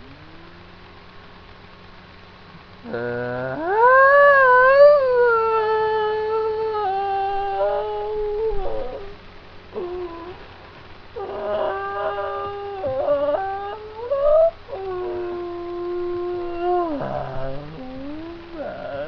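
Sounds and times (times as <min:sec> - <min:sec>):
person howling: 0:02.8 - 0:09.2, 0:09.8 - 0:10.4, 0:11.2 - 0:19.0.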